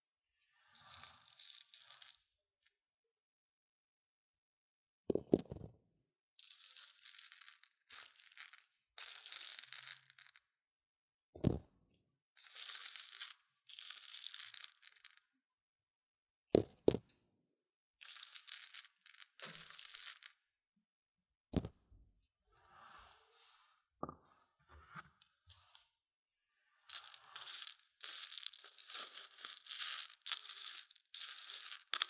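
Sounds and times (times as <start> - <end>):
stick stirring beans: 26.9 - 32.0.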